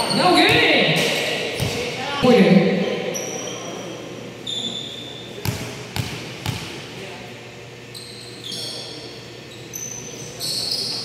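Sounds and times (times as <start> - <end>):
sneakers squeaking on court: 0.0 - 2.0, 2.8 - 6.9, 7.8 - 11.0
basketball bouncing: 0.4 - 2.0, 5.4 - 6.9.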